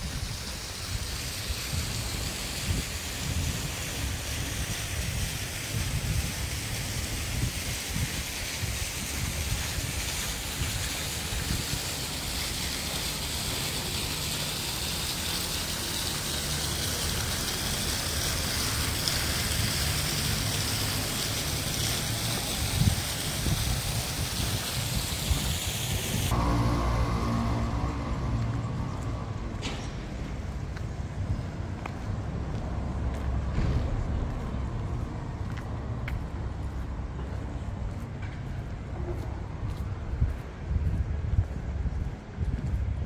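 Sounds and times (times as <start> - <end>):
wind on microphone: 0.0 - 12.7, 21.8 - 36.7, 37.3 - 43.0
fountain water splashing: 0.0 - 29.6.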